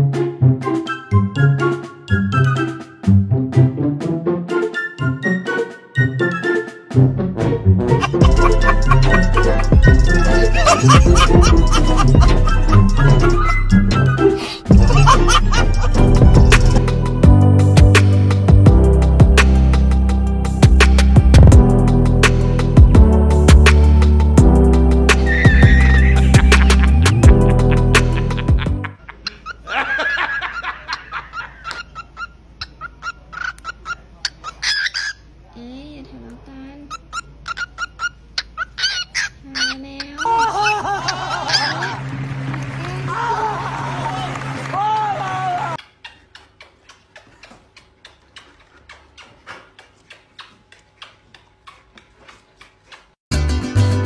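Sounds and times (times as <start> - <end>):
music: 0.0 - 29.0, 42.0 - 45.1, 53.3 - 54.0
parrot mimicking laughter: 7.9 - 16.1, 25.2 - 35.2, 36.9 - 42.0.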